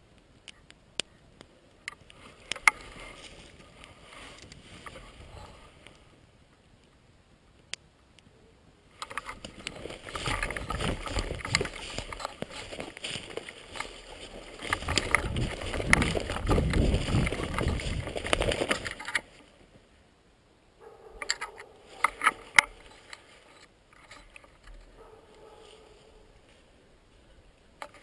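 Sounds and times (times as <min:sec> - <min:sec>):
wind rumbling: 0:01.8 - 0:07.6, 0:08.7 - 0:20.0
sharp knocks and clicks: 0:09.0 - 0:12.9
camera handling noise: 0:09.0 - 0:19.4.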